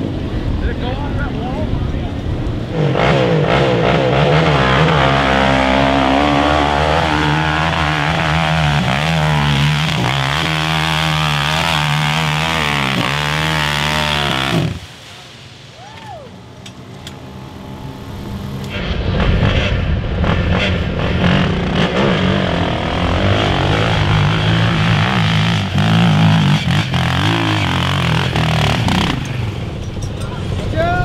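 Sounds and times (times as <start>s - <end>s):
quad engine revving hard: 2.7s - 14.9s, 18.7s - 29.6s.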